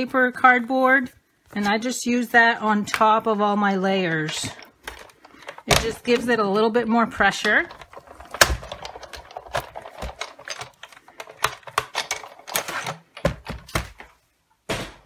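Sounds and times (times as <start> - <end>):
plates clicking and clunking: 7.4 - 14.0.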